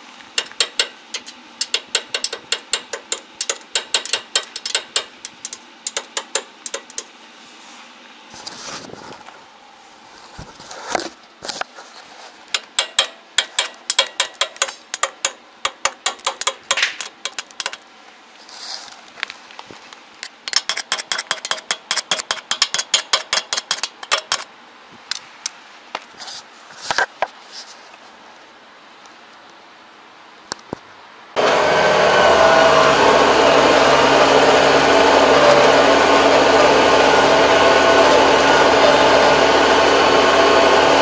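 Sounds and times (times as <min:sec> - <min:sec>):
rapid metallic tapping: 0:00.4 - 0:07.1, 0:12.6 - 0:17.8.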